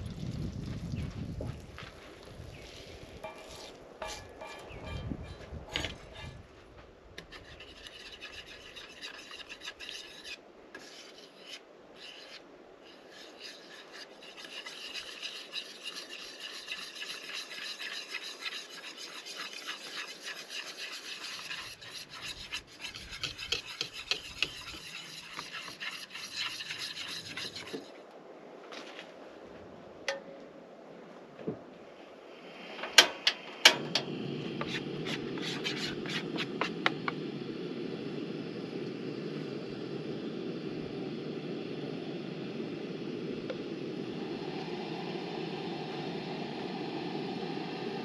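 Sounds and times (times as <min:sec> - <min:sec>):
whisk beating batter in bowl: 0:07.2 - 0:12.3, 0:12.9 - 0:27.9, 0:34.6 - 0:37.2.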